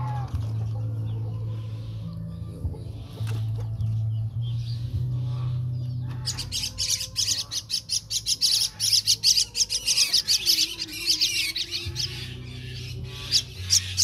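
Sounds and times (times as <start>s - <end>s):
birds squawking: 4.6s - 14.0s.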